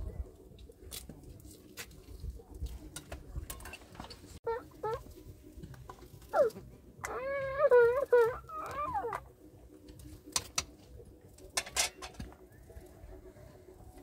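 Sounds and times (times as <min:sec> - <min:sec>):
wavering drawn-out animal cry: 0:06.3 - 0:09.3.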